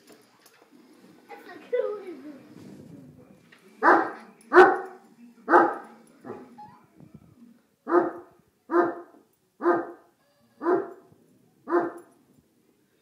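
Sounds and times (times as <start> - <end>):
dog barking: 3.8 - 6.5, 7.9 - 11.1, 11.7 - 12.1.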